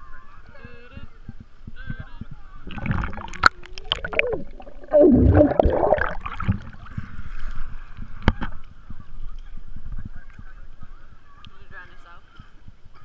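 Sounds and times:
water sloshing: 2.6s - 7.4s
underwater bubbling: 2.6s - 7.8s.

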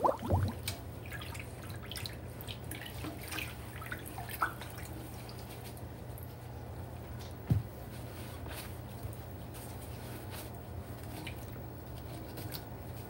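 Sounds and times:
sponge squeezed: 0.0s - 0.7s
water drips and splashes: 0.0s - 5.4s.

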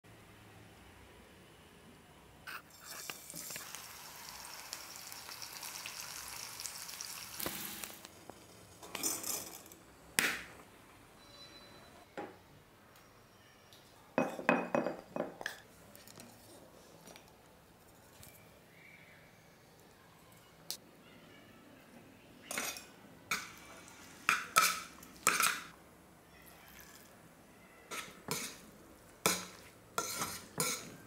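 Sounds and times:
vegetables sizzling in a pan: 2.6s - 9.6s.

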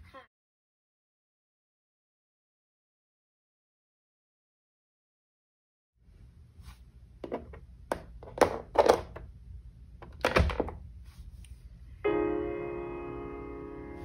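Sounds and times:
piano chord: 12.0s - 14.0s.

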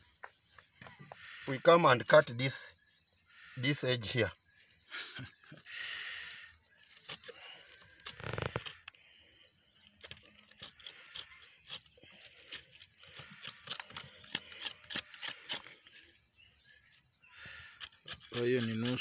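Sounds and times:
metal scraper scraping brick: 10.0s - 16.2s, 17.4s - 19.0s.

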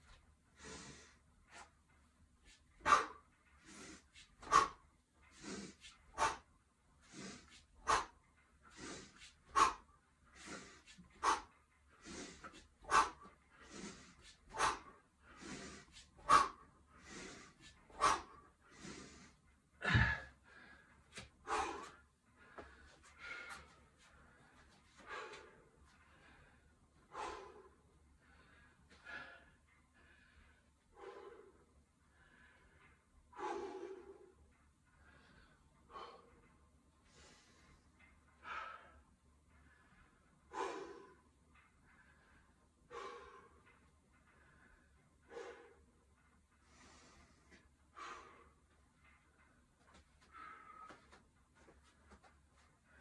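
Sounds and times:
heavy breathing: 0.0s - 53.0s
sharp forceful exhales: 10.4s - 19.2s.

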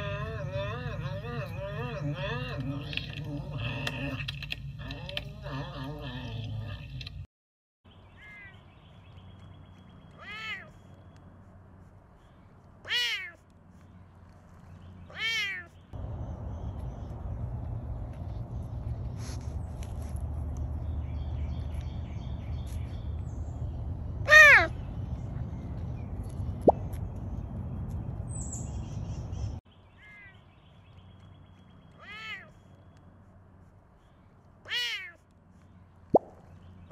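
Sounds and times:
serval meow-like calls: 0.0s - 6.9s.

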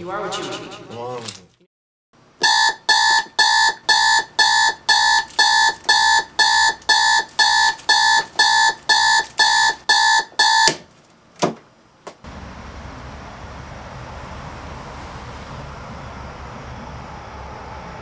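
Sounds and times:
clock radio alarm beeping: 2.4s - 10.8s.

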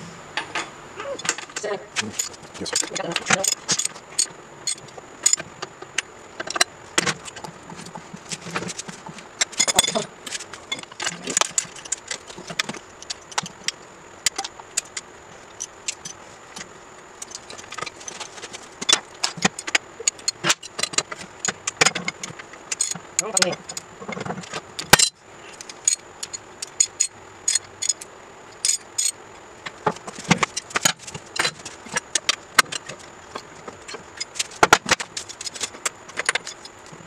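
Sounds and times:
metal tools clinking: 9.4s - 10.1s, 28.6s - 29.2s.

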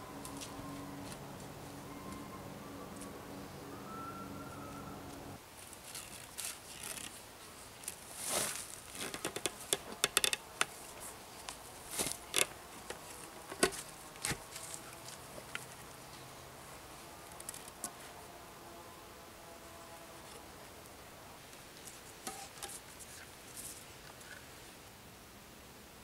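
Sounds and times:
logs scraping: 5.6s - 15.8s.

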